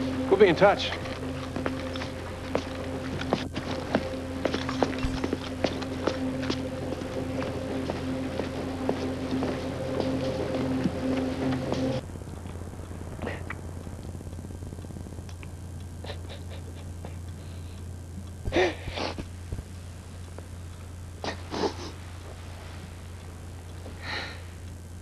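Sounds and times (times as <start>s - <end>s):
soft music: 0.0s - 13.4s
steady low hum: 0.0s - 25.0s.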